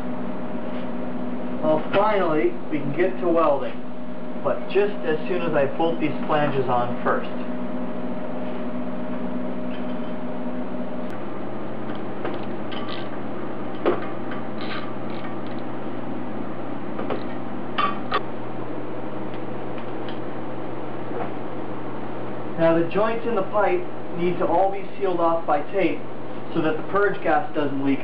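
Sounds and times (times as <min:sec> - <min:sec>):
steady hum: 0:00.0 - 0:28.0.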